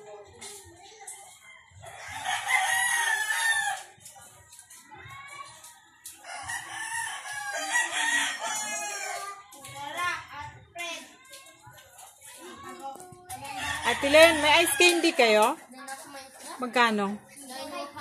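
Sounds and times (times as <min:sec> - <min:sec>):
rooster crowing: 0:02.0 - 0:03.8, 0:06.3 - 0:09.4, 0:13.5 - 0:15.3.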